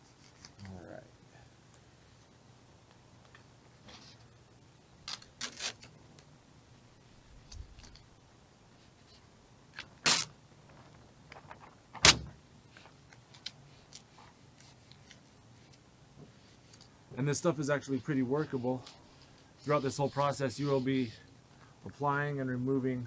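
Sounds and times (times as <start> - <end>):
squeegee scraping vinyl film: 5.0 - 5.9, 9.8 - 10.3, 17.4 - 21.2.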